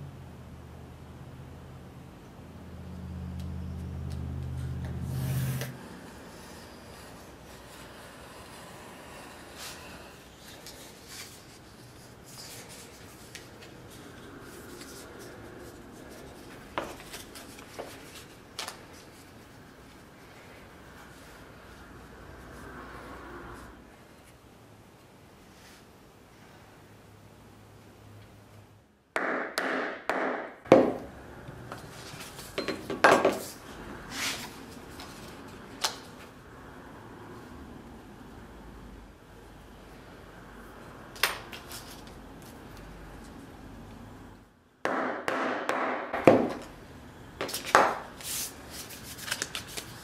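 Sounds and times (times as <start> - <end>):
paper rustling and rubbing: 9.6 - 21.4, 33.4 - 35.6, 47.4 - 50.0.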